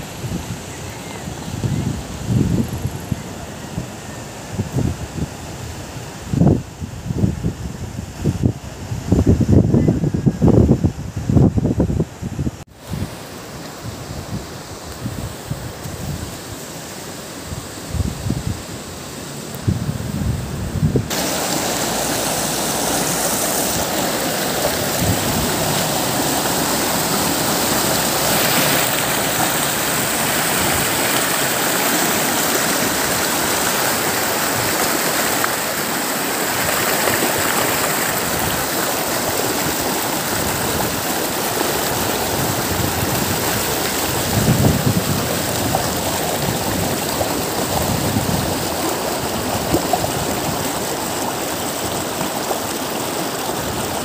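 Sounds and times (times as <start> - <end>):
river rushing over rocks: 12.7 - 54.0.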